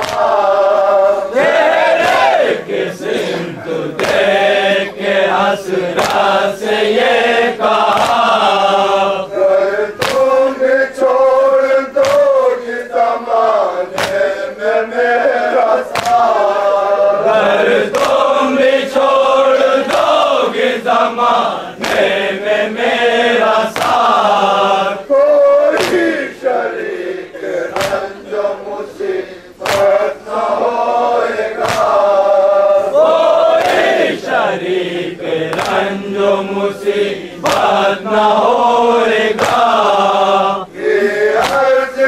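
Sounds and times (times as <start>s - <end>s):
men chanting in unison: 0.0s - 42.0s
hands striking chests: 15.9s - 16.3s, 27.7s - 28.0s, 29.6s - 30.0s, 31.6s - 32.0s, 41.4s - 41.7s.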